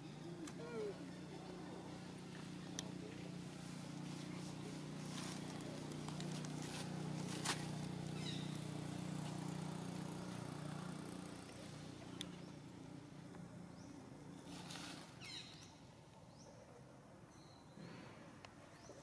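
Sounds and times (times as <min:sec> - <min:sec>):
low motor hum: 0:00.0 - 0:15.2.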